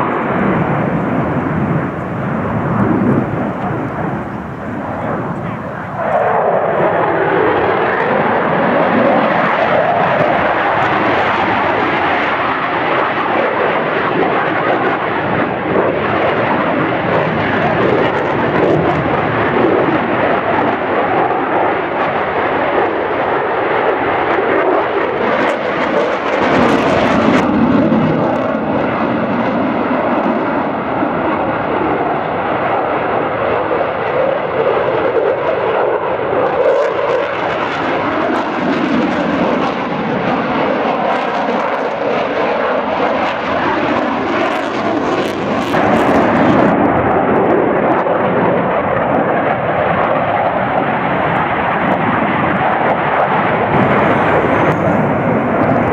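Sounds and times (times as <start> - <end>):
steady whining tones: 0.0 - 8.5, 53.7 - 55.9
jet engine roar: 0.0 - 55.9.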